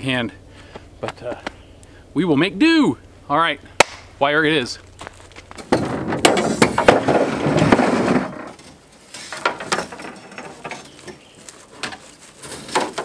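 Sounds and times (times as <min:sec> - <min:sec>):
tailgate metallic clatter: 0:05.5 - 0:08.7.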